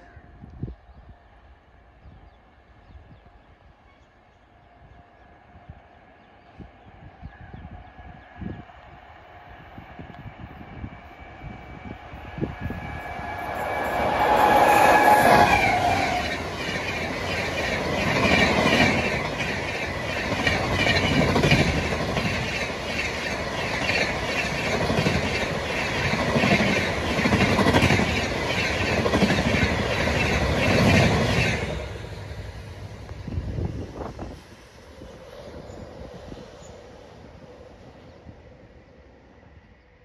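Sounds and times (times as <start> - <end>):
train coaches rushing past: 8.0 - 38.9
train horn: 12.4 - 16.4.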